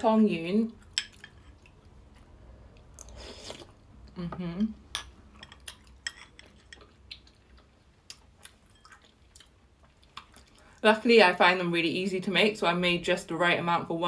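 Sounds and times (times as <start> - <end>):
soft chewing: 0.7 - 10.8
person humming mm: 4.1 - 4.8.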